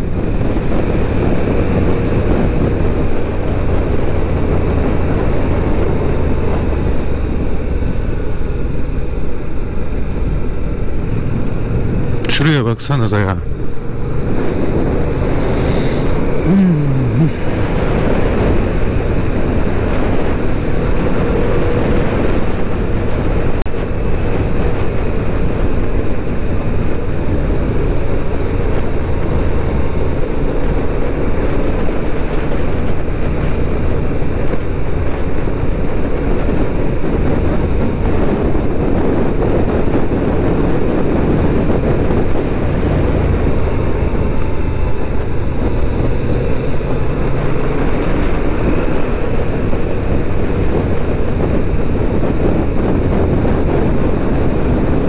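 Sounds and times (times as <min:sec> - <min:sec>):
wind and road rush: 0:00.0 - 0:55.0
motorcycle engine running: 0:13.4 - 0:55.0.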